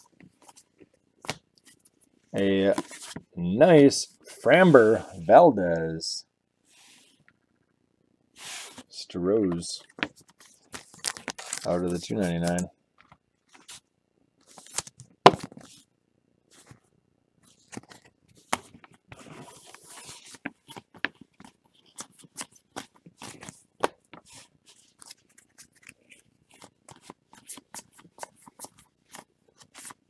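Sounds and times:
papery rustle: 10.2s - 12.6s, 17.5s - 30.0s.

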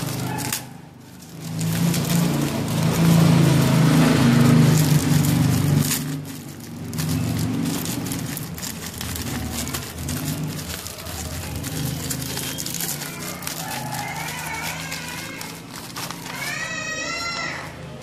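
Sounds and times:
plastic wrap crinkling: 0.0s - 18.0s.

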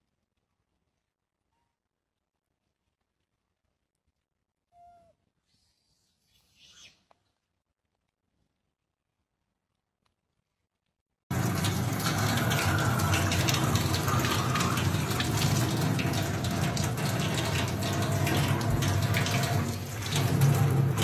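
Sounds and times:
tap water splashing into sink: 11.3s - 21.0s.

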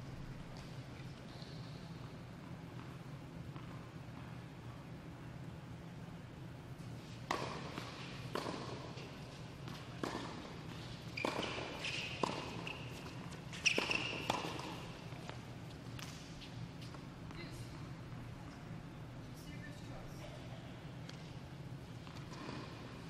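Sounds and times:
tennis ball struck and bouncing: 7.3s - 9.0s, 9.6s - 10.6s, 11.2s - 13.0s, 13.7s - 15.4s
shoe squeaks on court: 11.1s - 14.8s.

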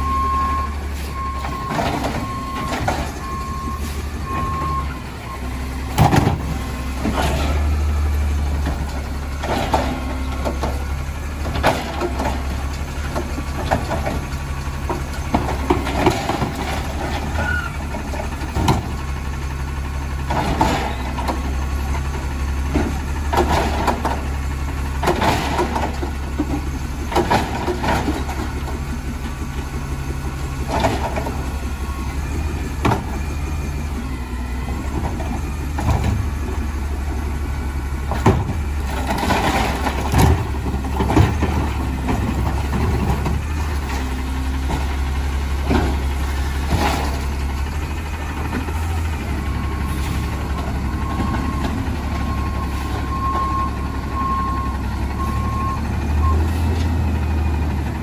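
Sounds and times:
garbage truck engine hum: 0.0s - 58.0s
cart bangs and clatters: 20.2s - 21.5s, 22.7s - 24.2s.

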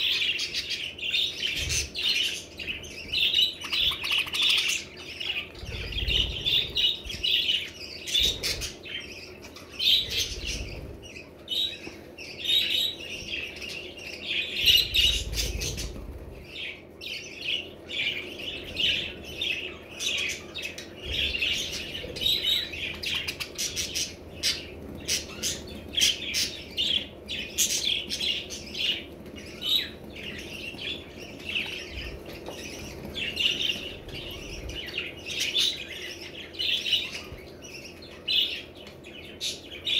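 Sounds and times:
budgerigars chattering: 0.0s - 10.9s.

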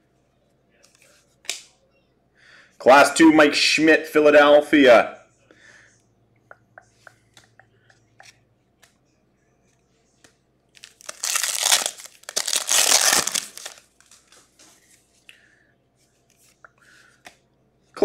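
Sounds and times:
foil wrapper crinkling: 10.8s - 14.4s.

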